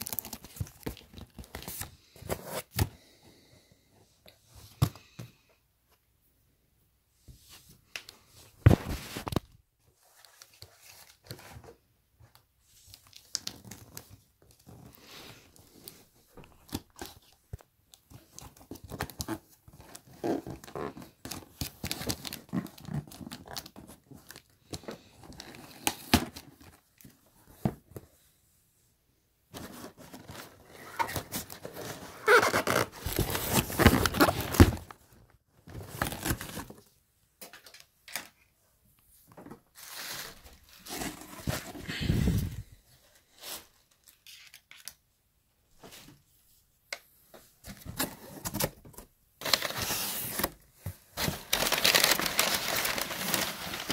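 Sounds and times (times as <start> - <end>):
cardboard and paper rustling: 8.4 - 28.2, 29.5 - 36.9, 39.3 - 44.9, 47.6 - 53.9.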